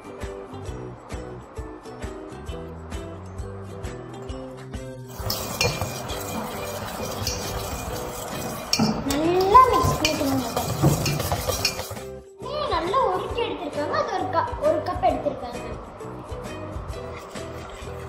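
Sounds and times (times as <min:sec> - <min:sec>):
whisk scraping metal bowl: 0:05.1 - 0:12.1, 0:17.0 - 0:18.0.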